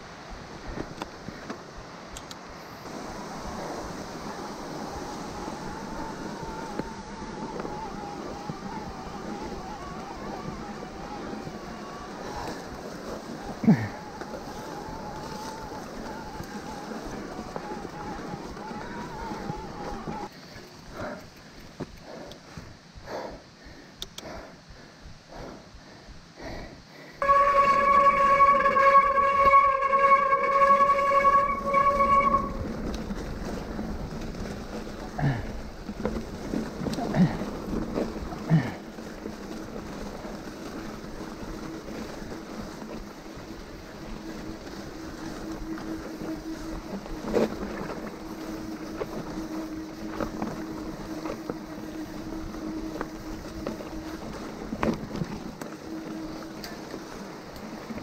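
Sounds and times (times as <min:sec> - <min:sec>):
mountain bike humming and rattling: 0:00.0 - 0:23.4, 0:27.2 - 0:58.0
high-pitched squeal: 0:27.2 - 0:33.0
low rushing noise: 0:27.2 - 0:58.0.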